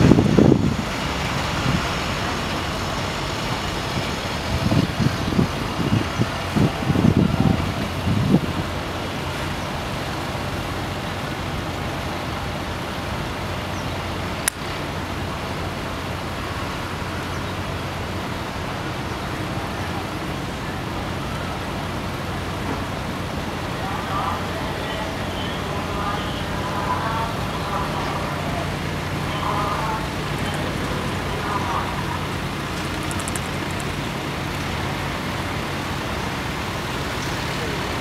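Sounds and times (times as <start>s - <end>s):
distant traffic hum: 0.0s - 38.0s.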